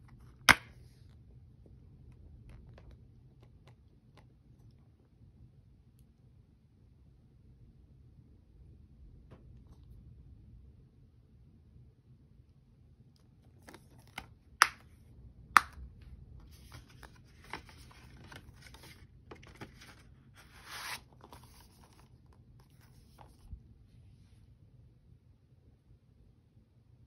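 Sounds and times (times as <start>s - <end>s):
case rustling in cardboard sleeve: 16.5s - 23.4s.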